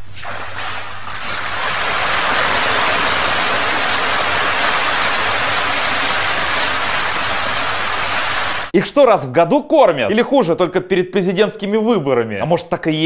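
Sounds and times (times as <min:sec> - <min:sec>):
fish splashing water: 0:00.0 - 0:08.7.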